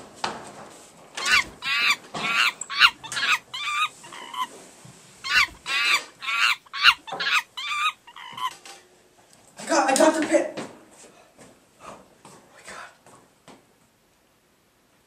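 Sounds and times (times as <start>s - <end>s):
squealing warbling cries: 1.2s - 4.5s, 5.2s - 8.6s.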